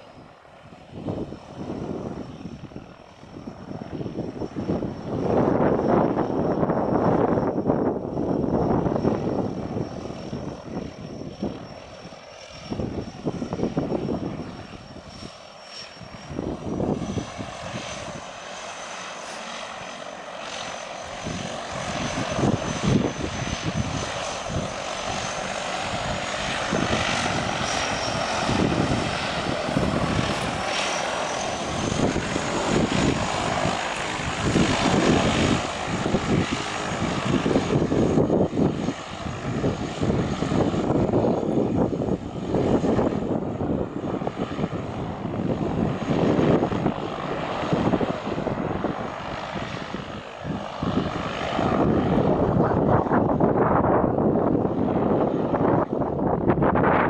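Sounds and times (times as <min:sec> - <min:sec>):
floatplane engine and propeller: 0:00.0 - 0:57.0
thin high whine: 0:18.0 - 0:35.2.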